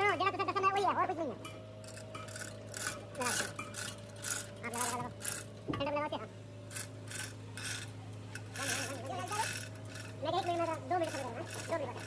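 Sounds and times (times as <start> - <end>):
steady low hum: 0.0 - 12.0
steel chains clinking and rattling: 1.5 - 5.5, 6.7 - 12.0.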